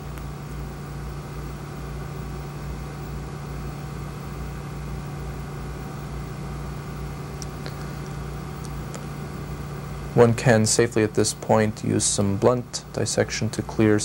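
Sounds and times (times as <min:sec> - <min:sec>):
machine hum with pulsing throb: 0:00.0 - 0:14.0.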